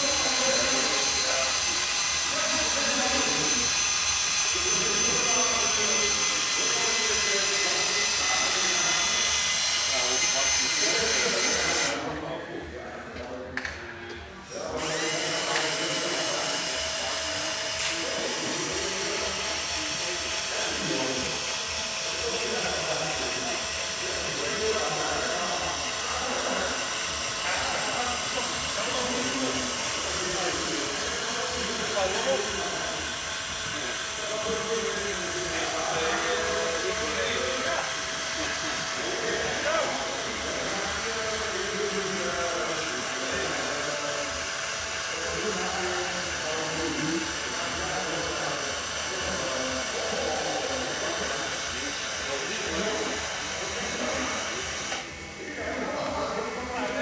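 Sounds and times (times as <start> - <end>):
indistinct crowd chatter: 0.0 - 57.0
steady whirring hum: 0.0 - 57.0.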